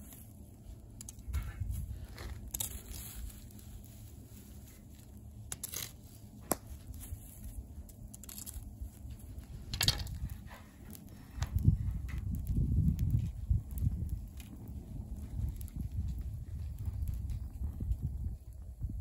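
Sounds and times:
embers crackling and popping: 0.0s - 19.0s
low steady rumble: 0.0s - 19.0s.

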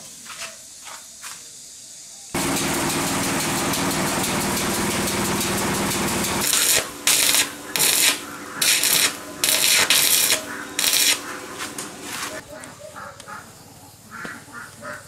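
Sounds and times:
arc welding crackling: 2.4s - 12.4s
machine hum: 2.4s - 12.4s.

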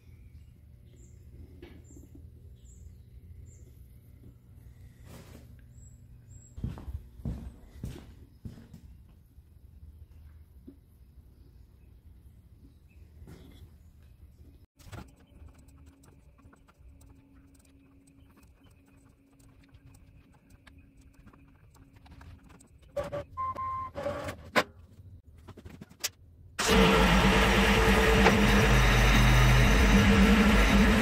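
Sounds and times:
tractor diesel engine running: 26.6s - 31.0s.

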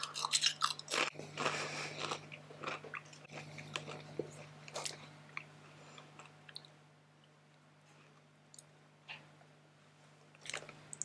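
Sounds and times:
chip crunching and chewing: 0.0s - 6.7s.

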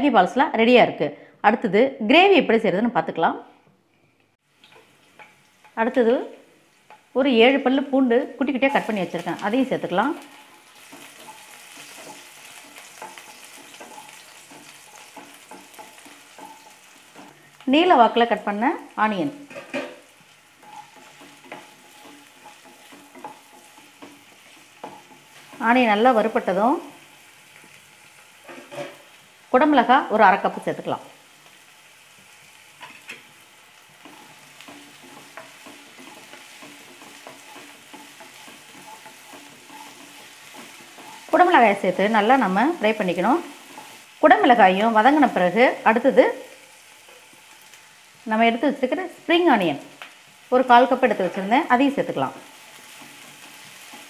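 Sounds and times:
food sizzling in hot oil: 4.4s - 54.0s
wooden spatula scraping pan: 10.1s - 17.6s, 19.2s - 26.4s, 28.4s - 29.2s, 33.9s - 44.2s, 52.4s - 54.0s.

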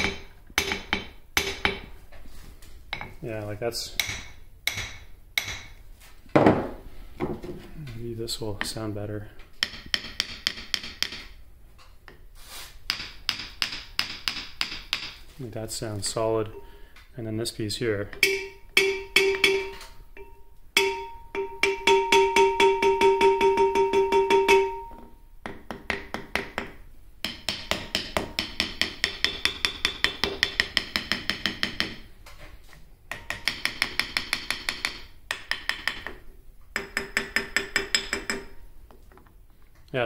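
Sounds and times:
steady ringing tone: 18.2s - 25.1s.

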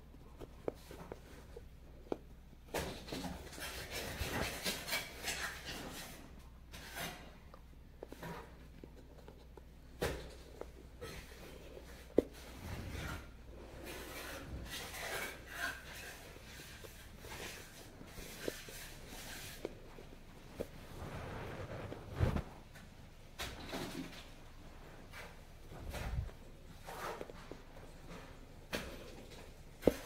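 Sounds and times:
fabric rustling: 10.8s - 23.0s.

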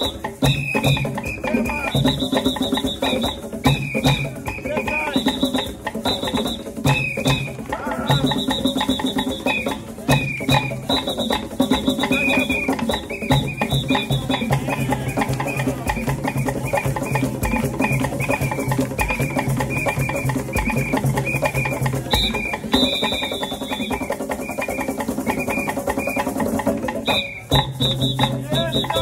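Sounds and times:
hand drums playing fast rhythm: 0.0s - 29.0s.

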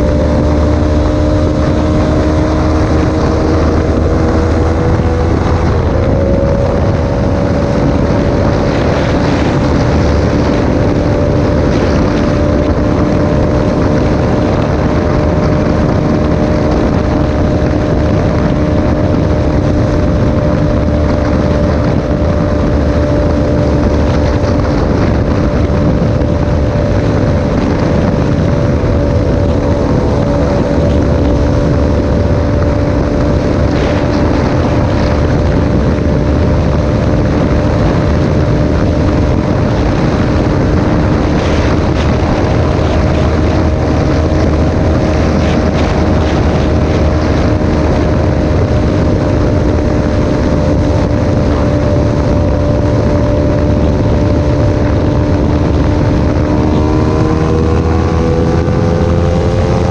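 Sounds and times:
motorcycle engine at high revs: 0.0s - 59.9s
wind rush on microphone: 0.0s - 59.9s.

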